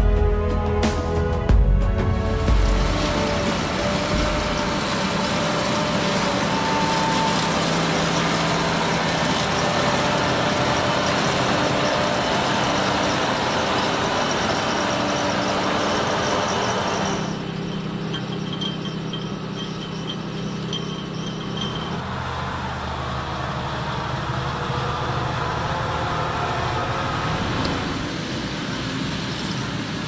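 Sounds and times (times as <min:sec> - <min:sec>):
harvester engine hum: 0:00.0 - 0:30.0
rattle of soil and stones: 0:02.5 - 0:22.1.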